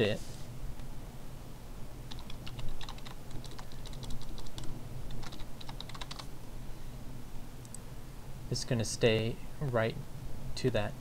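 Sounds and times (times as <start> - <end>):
keyboard typing: 2.1 - 6.3.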